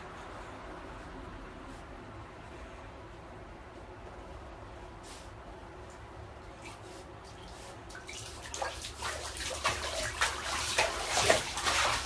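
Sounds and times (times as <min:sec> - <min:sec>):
dog splashing in bathwater: 0:07.3 - 0:12.0.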